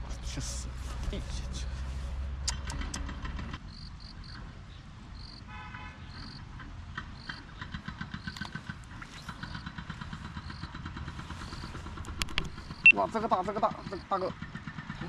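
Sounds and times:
distant road traffic rumbling: 0.0s - 15.0s
car horn toot: 5.5s - 6.1s.

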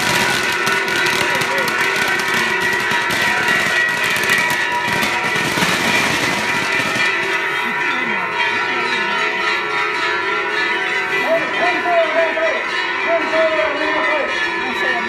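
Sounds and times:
fireworks crackling hiss: 0.0s - 7.2s
bells ringing: 0.0s - 15.0s
crowd voices: 0.0s - 15.0s.

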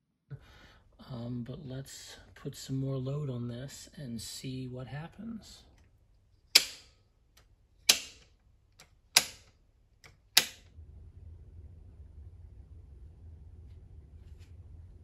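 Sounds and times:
low steady hum: 0.3s - 15.0s
circuit breakers snapping on: 6.5s - 7.0s, 7.8s - 10.7s.

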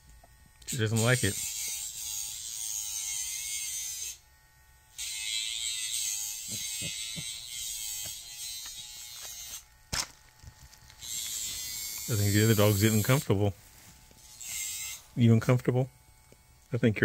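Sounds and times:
nail grinder buzzing: 0.6s - 4.3s, 4.9s - 16.9s.

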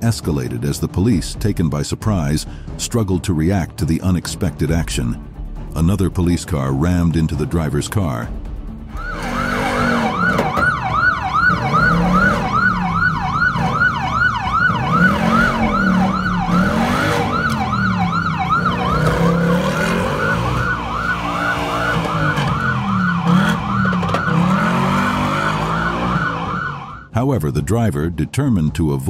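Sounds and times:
low rising and falling tone: 8.9s - 27.1s
police siren fast yelp: 9.0s - 27.1s.

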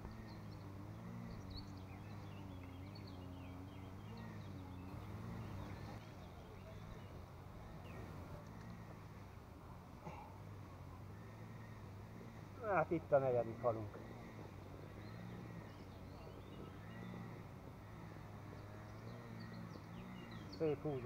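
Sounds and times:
low engine hum: 0.0s - 21.0s
small birds chirping: 0.0s - 21.0s.

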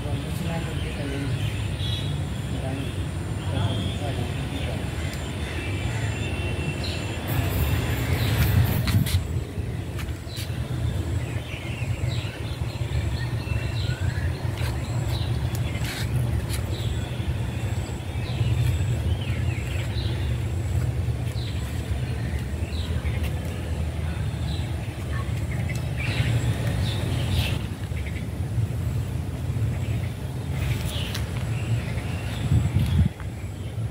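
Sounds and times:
small birds chirping: 0.0s - 33.9s
steady low rumble: 7.1s - 33.9s.

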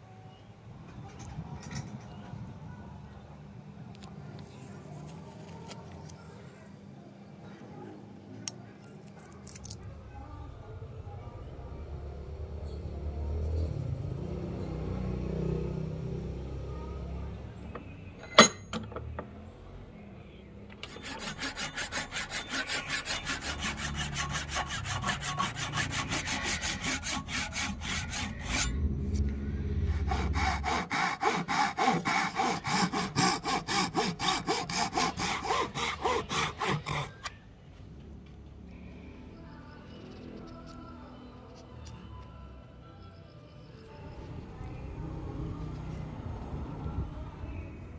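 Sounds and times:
hand saw cutting wood: 20.8s - 28.8s, 29.8s - 37.3s.

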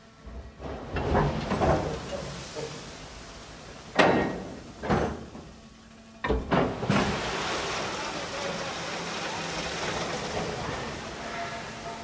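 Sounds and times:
coal rushing into a pit: 6.5s - 11.6s.

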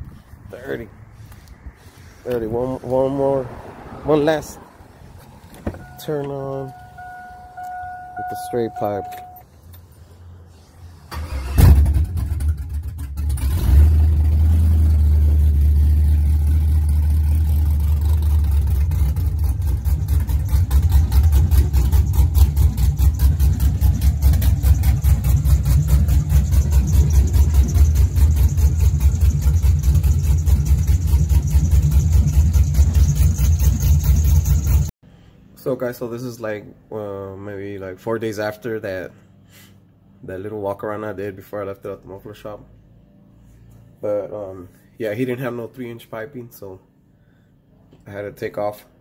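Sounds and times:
truck engine starting and idling: 2.3s - 34.9s.

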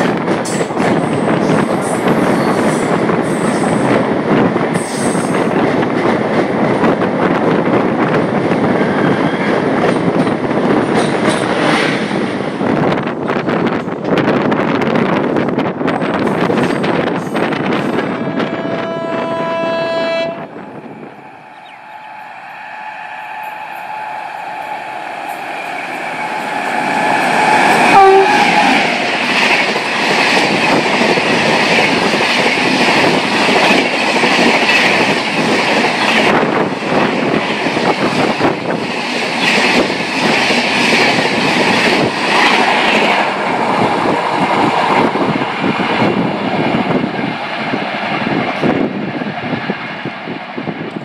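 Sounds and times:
train horn: 17.9s - 20.6s, 21.4s - 29.0s.

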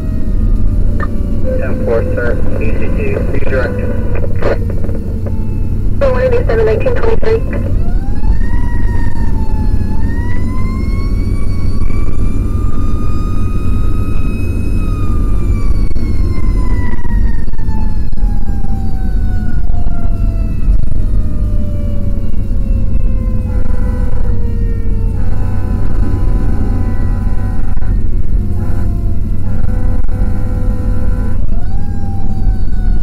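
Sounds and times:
fire engine siren wailing: 0.0s - 33.0s
road noise: 0.0s - 33.0s
truck engine rumble: 0.0s - 33.0s.

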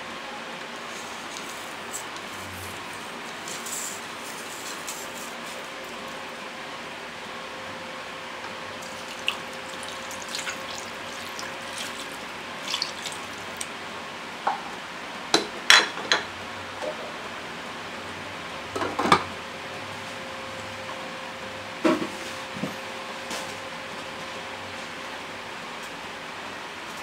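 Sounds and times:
water pouring into pot: 8.8s - 13.7s.

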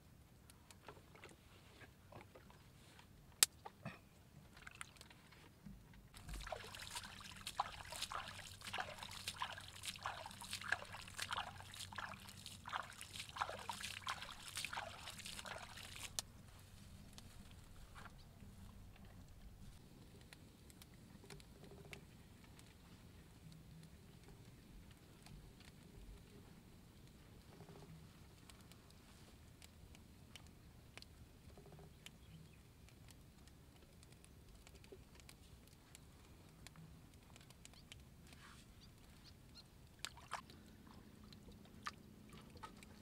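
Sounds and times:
hand splashing water: 6.2s - 16.2s.

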